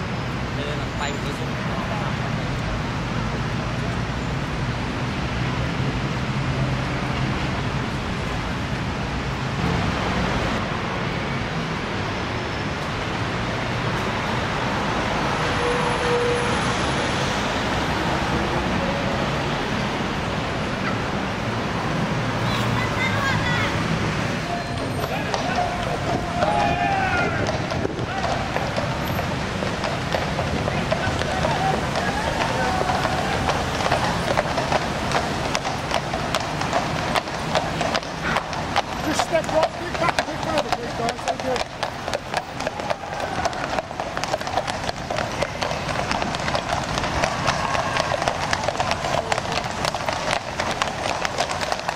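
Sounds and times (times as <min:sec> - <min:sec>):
road traffic hum: 0:00.0 - 0:51.9
steady background noise: 0:00.0 - 0:51.9
horse hooves clip-clopping on pavement: 0:17.3 - 0:51.9.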